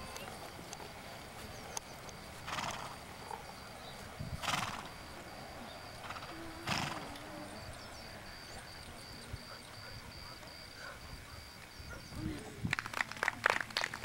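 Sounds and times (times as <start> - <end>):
horse snorting breathy bursts: 2.5 - 3.0, 4.4 - 5.0, 6.0 - 7.4.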